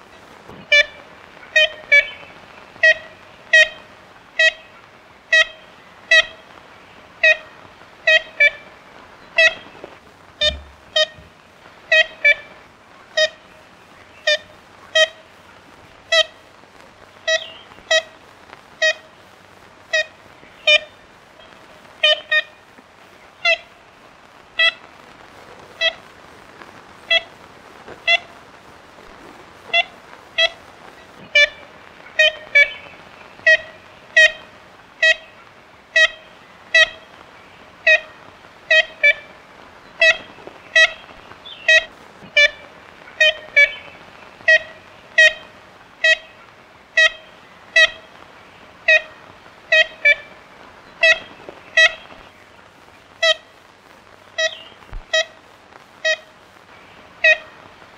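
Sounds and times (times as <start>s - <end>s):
faint steady hiss: 0.0s - 57.9s
woodpecker nasal calls: 0.1s - 18.2s, 19.8s - 26.0s, 27.0s - 28.4s, 29.1s - 53.6s, 54.2s - 57.7s.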